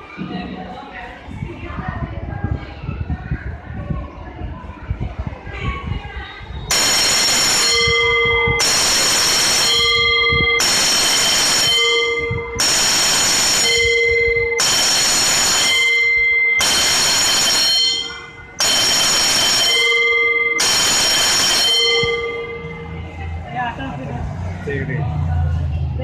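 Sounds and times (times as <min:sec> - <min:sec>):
electric bell ringing: 0:06.7 - 0:23.4.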